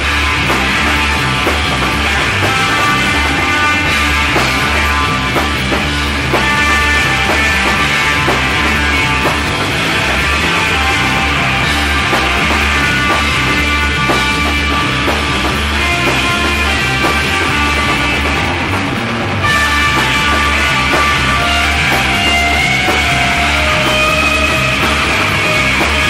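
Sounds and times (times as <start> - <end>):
psychedelic rock band: 0.0 - 26.0.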